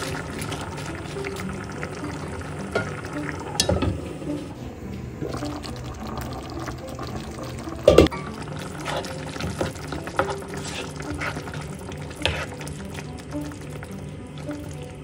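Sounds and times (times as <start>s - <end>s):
soft background music: 0.0s - 15.0s
spatula stirring thick curry: 8.5s - 13.7s.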